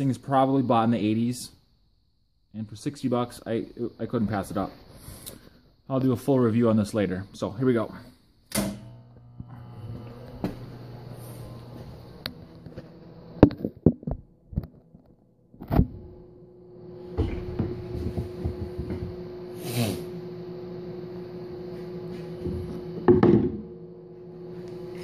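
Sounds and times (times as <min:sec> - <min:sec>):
welder transformer humming: 0:06.2 - 0:25.0.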